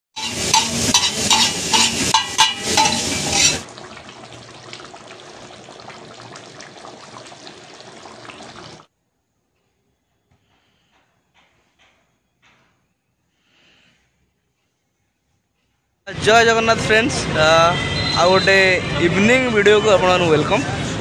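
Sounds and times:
metal spatulas clattering on griddle: 0:00.2 - 0:03.6
noodles sizzling while stir-fried: 0:00.2 - 0:03.7
curry simmering and bubbling: 0:00.2 - 0:08.9.

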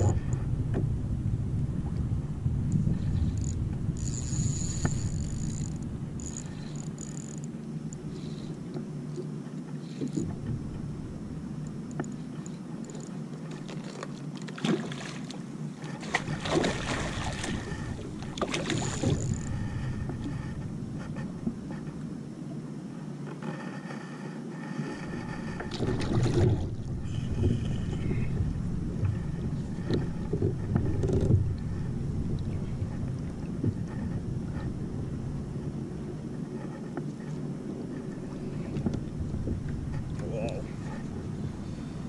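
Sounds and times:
wind: 0:00.0 - 0:42.0
water washing around kayak: 0:12.2 - 0:21.8, 0:23.5 - 0:42.0
fish thrashing and splashing: 0:16.0 - 0:19.1.

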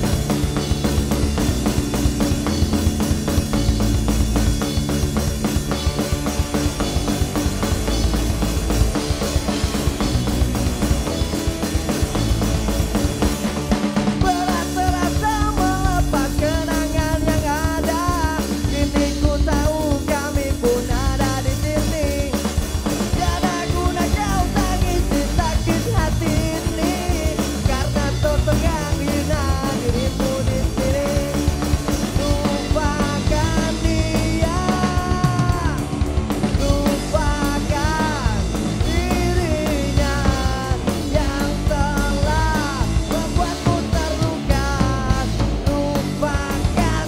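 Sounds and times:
bass guitar: 0:00.0 - 0:47.0
drum kit: 0:00.0 - 0:47.0
electric guitar: 0:00.0 - 0:47.0
person singing: 0:14.2 - 0:47.0.

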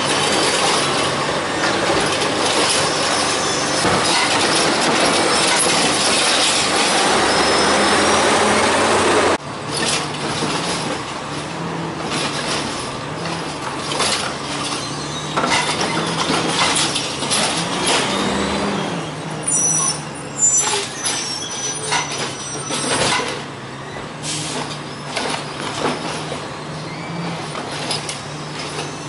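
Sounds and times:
garbage truck engine running: 0:00.0 - 0:29.0
mechanical arm clanking: 0:12.0 - 0:18.7
air brakes hissing: 0:24.2 - 0:24.8.

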